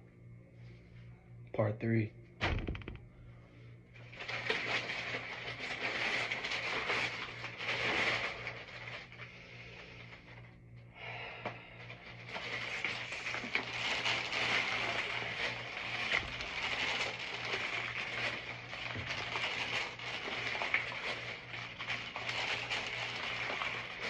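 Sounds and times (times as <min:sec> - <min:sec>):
plastic wrap and bottles crinkling: 0:04.0 - 0:10.6, 0:11.8 - 0:24.0.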